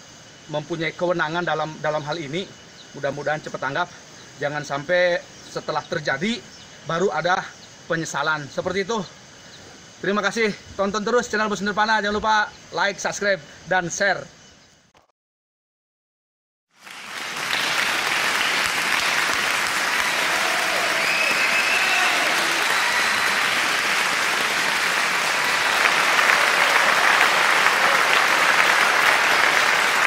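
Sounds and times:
crowd applauding: 16.8s - 30.0s
faint cheers: 19.8s - 30.0s.

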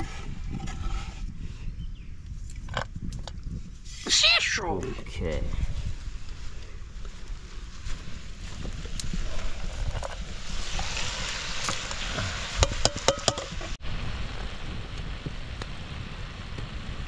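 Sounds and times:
wind rumbling on microphone: 0.0s - 17.0s
food sizzling in a pot: 10.2s - 13.8s.

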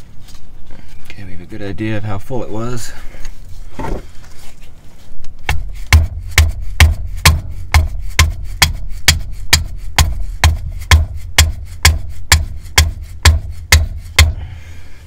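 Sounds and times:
mallet striking wrench: 5.5s - 14.5s.

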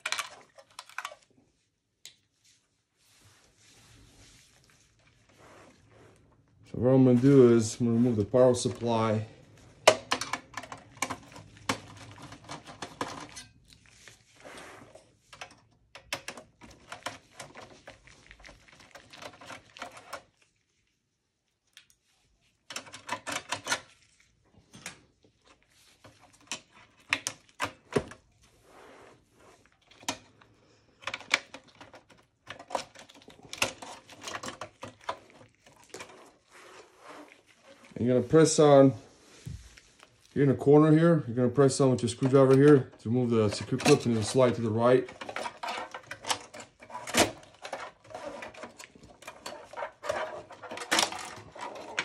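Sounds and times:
plastic and metal parts knocking: 9.8s - 13.4s.

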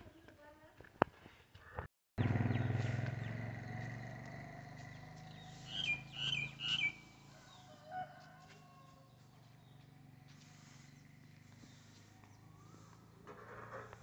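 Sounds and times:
lower call: 2.2s - 7.4s
short high calls: 5.3s - 7.3s.

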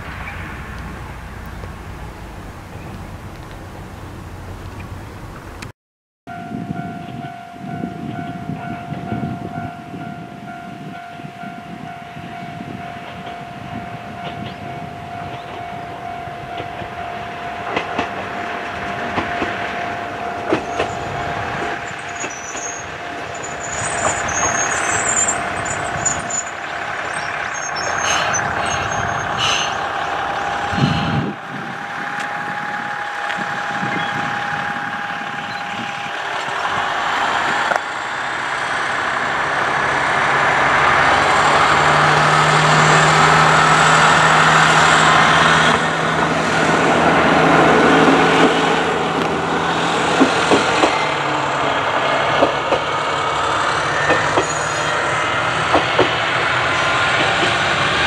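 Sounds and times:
steady high tone: 0.0s - 5.4s, 6.3s - 50.0s
birds chirping: 0.0s - 5.6s, 12.2s - 16.8s, 20.0s - 31.2s, 33.8s - 34.4s
diesel railcar engine: 0.0s - 5.7s, 6.3s - 58.0s.

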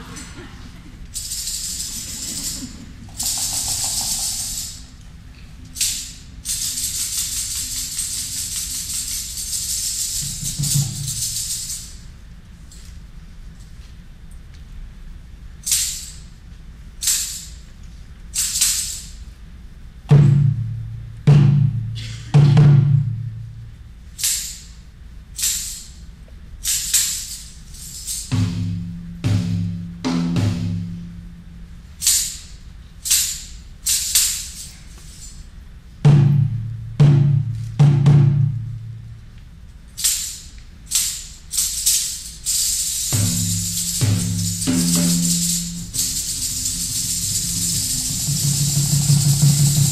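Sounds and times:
high rattle shakes: 0.0s - 13.8s, 15.6s - 19.3s, 24.1s - 28.9s, 30.7s - 35.8s, 39.8s - 49.9s
deep drum strokes: 43.2s - 49.9s.

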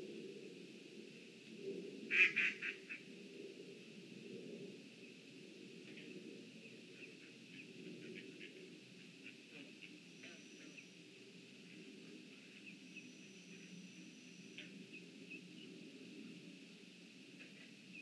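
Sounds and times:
low steady hum: 0.0s - 18.0s
thin high whine: 11.6s - 15.0s
bird chirps: 12.5s - 15.7s.

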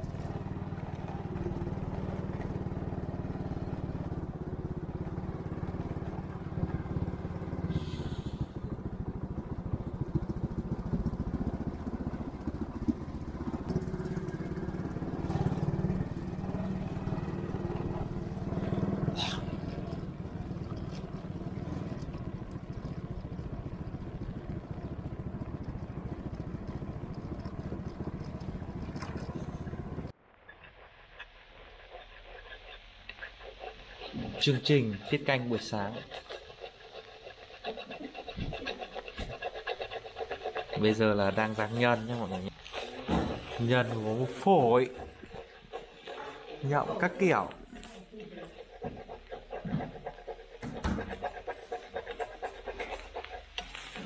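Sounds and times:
motorbike engine running: 0.0s - 30.2s, 33.5s - 47.9s, 48.5s - 54.0s.

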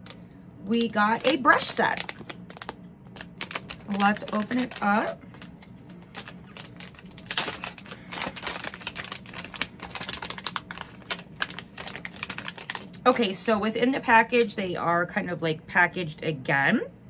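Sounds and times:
packaging clicks and crackles: 0.8s - 13.2s
packaging rustles: 0.8s - 13.4s.

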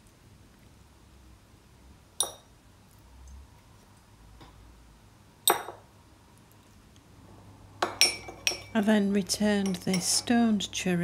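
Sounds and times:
wooden spoon tapping china plate: 2.2s - 2.4s, 7.8s - 8.8s, 9.6s - 10.2s.

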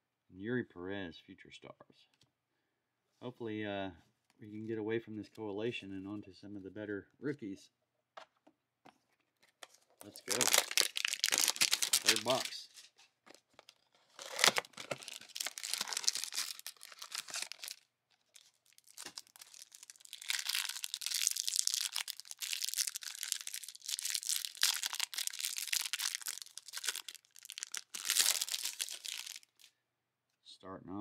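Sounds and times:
plastic wrap crinkling and tearing: 9.6s - 29.7s
cardboard ripping and rustling: 10.1s - 12.6s, 13.6s - 17.8s, 18.4s - 29.4s.

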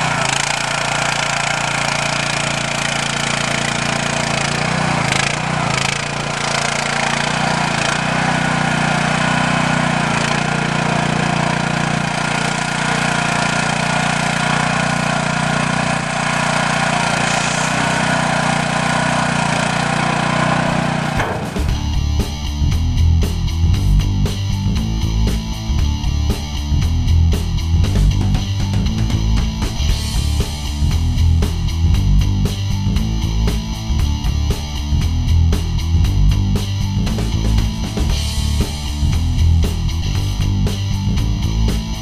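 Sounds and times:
mini excavator engine running: 0.0s - 22.1s
knocks and rattles: 20.4s - 21.9s.

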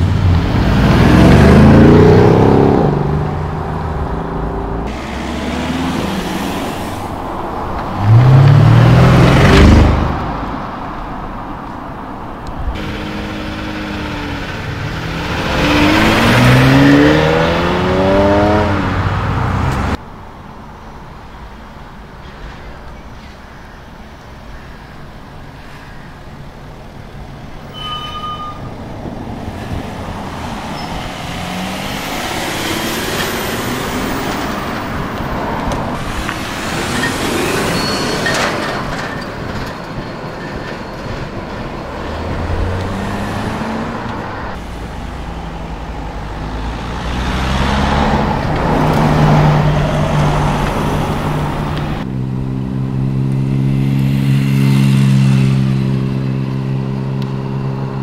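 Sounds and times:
cars driving past: 0.0s - 20.2s, 27.7s - 58.0s
close engine steady note: 12.8s - 15.6s.

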